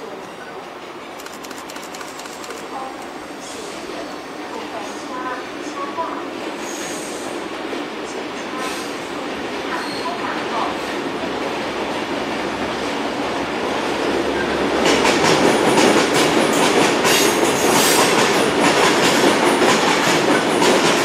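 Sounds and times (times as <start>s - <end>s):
freight train rolling past: 0.0s - 21.0s
train wheels clattering: 14.8s - 21.0s.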